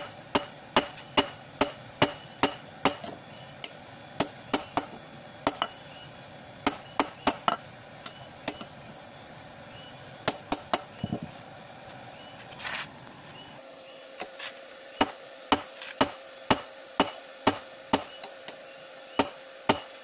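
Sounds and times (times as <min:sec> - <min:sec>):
hammer striking metal on anvil: 0:00.0 - 0:05.8, 0:15.0 - 0:18.2, 0:19.2 - 0:20.0.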